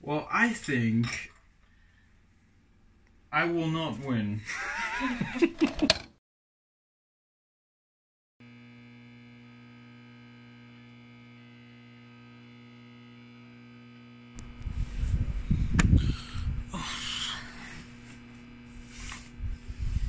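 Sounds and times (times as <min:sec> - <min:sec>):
electrical hum: 0:00.0 - 0:06.0, 0:08.4 - 0:20.0
crackling static with rumbling: 0:10.7 - 0:20.0
sharp click: 0:15.7 - 0:16.0.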